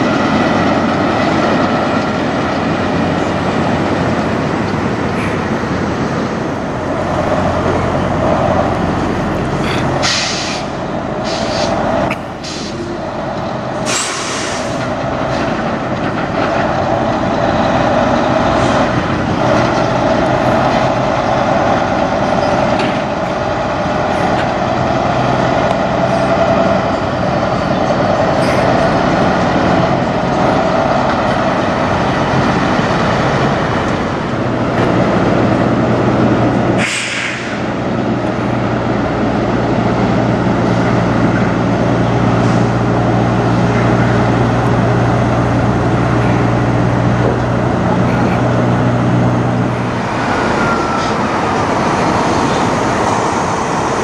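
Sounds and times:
diesel truck engines: 0.0s - 54.0s
air hiss: 10.0s - 11.8s, 13.8s - 14.8s, 36.8s - 37.7s.

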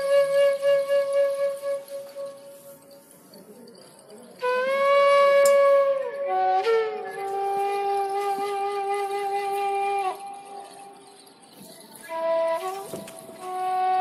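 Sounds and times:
slow flute music: 0.0s - 14.0s.

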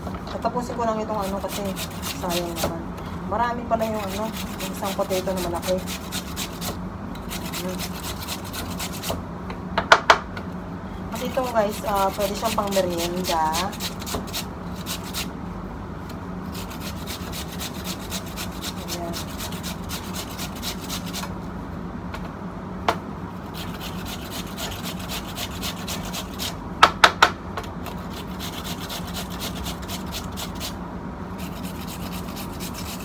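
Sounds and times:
potato grating on metal grater: 1.1s - 2.8s, 3.6s - 9.2s, 11.2s - 15.3s, 16.5s - 21.3s, 23.4s - 26.6s, 27.8s - 30.8s, 31.4s - 33.0s.

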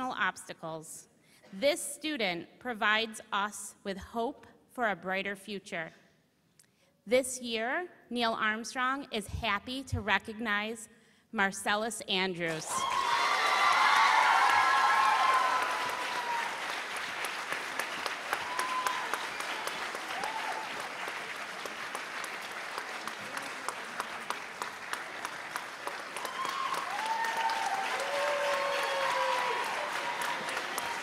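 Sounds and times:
audience applauding: 12.8s - 31.0s
people calling and cheering: 18.2s - 21.0s, 25.9s - 31.0s.

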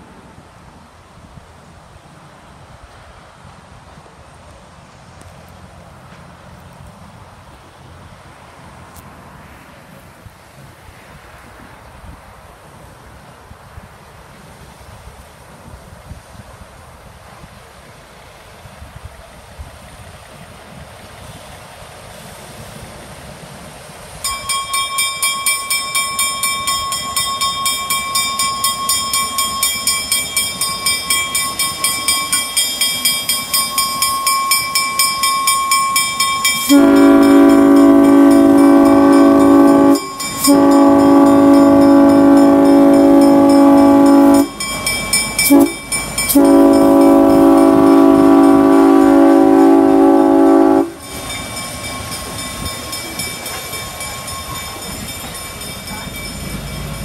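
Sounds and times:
locomotive bell ringing: 24.2s - 57.0s
train air horn: 33.9s - 44.8s, 45.4s - 51.3s.

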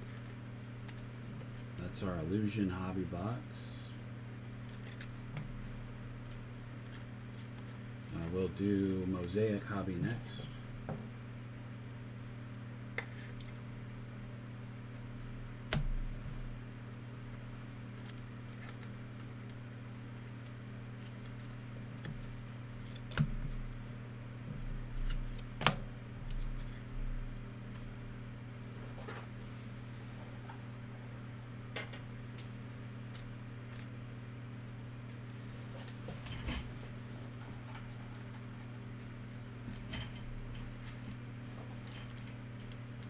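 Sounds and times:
low electrical hum: 0.0s - 43.0s
card packs being handled: 6.3s - 10.4s.

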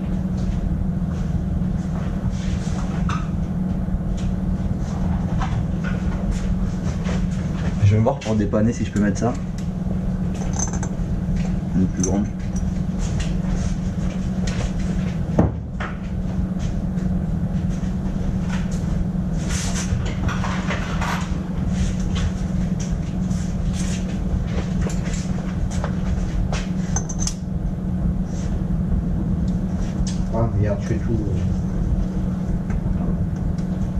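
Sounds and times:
low machine hum: 0.0s - 33.9s
metal tool clinks and knocks: 10.4s - 11.0s, 27.0s - 27.4s.

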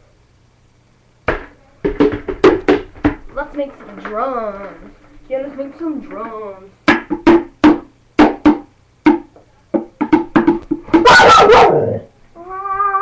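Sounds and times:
bucket drum strikes: 1.3s - 3.4s, 6.8s - 11.3s
dog barking: 11.0s - 12.1s.

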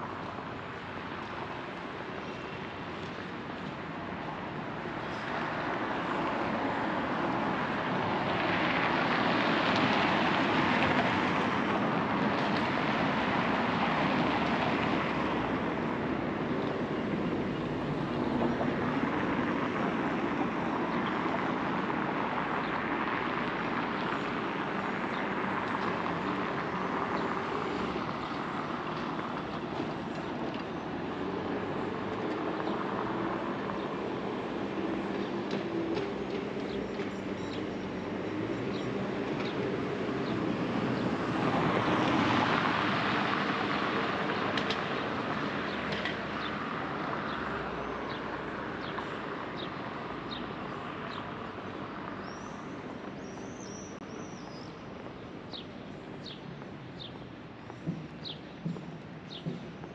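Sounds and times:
birds chirping: 44.2s - 59.9s.

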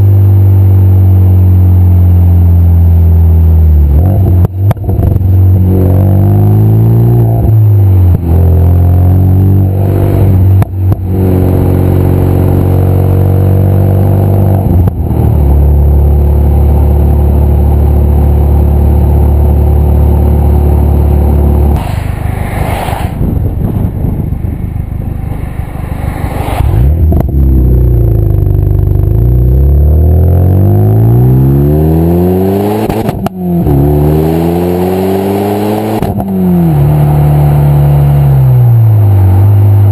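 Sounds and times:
car engine revving through gears: 1.1s - 21.8s, 24.5s - 39.9s
exhaust cracks: 21.2s - 29.6s.

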